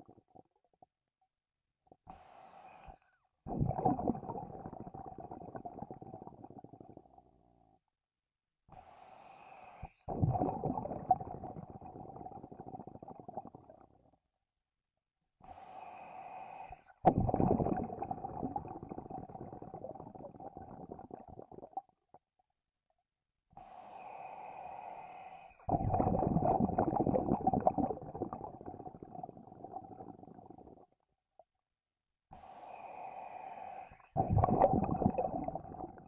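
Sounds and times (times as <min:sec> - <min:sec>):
bubbling exhale underwater: 0:03.5 - 0:07.1, 0:10.1 - 0:13.8, 0:17.1 - 0:21.8, 0:25.7 - 0:30.8, 0:34.2 - 0:36.0
hissing regulator inhale: 0:08.8 - 0:10.0, 0:15.4 - 0:16.9, 0:23.6 - 0:25.7, 0:32.4 - 0:34.2.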